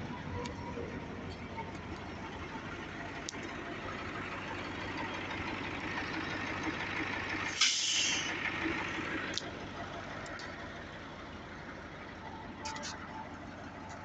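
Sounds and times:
diesel engine idling: 0:00.0 - 0:14.0
loud hiss of released air: 0:07.5 - 0:08.3.

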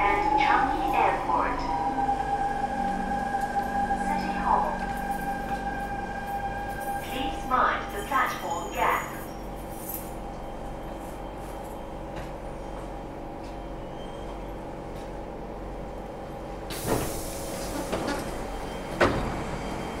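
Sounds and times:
train car hum: 0:00.0 - 0:20.0
train doors sliding open: 0:16.7 - 0:20.0.

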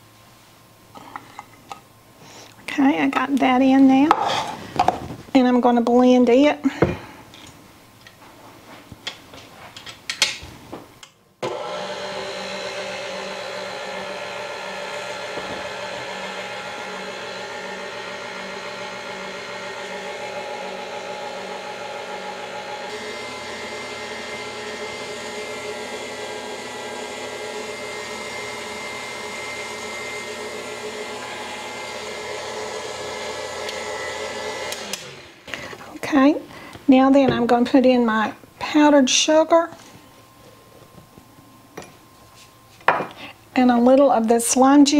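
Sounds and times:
stand mixer whisking: 0:11.4 - 0:35.4.

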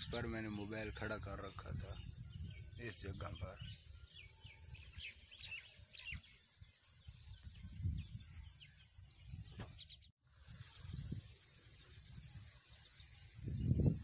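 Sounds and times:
small birds chirping: 0:00.0 - 0:14.0
wind buffeting microphone: 0:00.0 - 0:14.0
high insect drone: 0:10.4 - 0:14.0.

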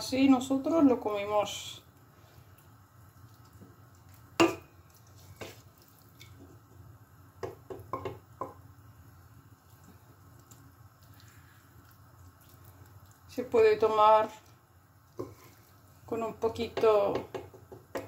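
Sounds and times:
spoon knocking a metal pot: 0:07.4 - 0:08.6.

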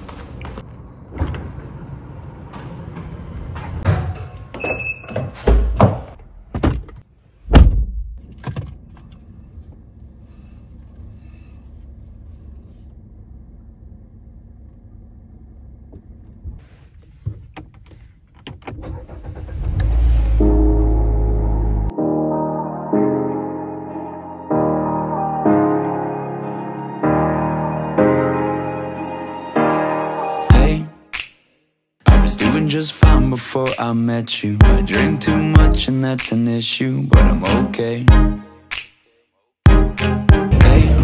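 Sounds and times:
heavy door thunks: 0:05.4 - 0:08.1.

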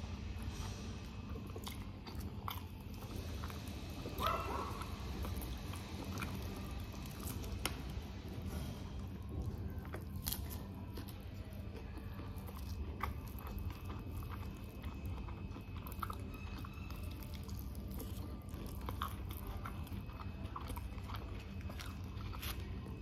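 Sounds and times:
chewing fried chicken: 0:00.0 - 0:23.0.

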